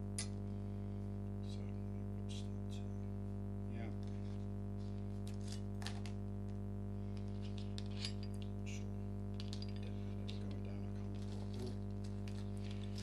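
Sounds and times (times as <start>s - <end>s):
steady electrical buzz: 0.0s - 13.0s
small metal parts clinking: 7.2s - 8.5s, 9.3s - 13.0s.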